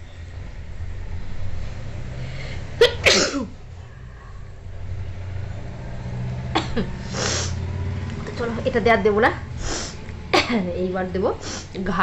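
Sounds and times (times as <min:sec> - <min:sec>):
low steady hum: 0:00.0 - 0:12.0
breathy rush of air: 0:01.8 - 0:05.0, 0:06.9 - 0:07.8, 0:09.6 - 0:10.1.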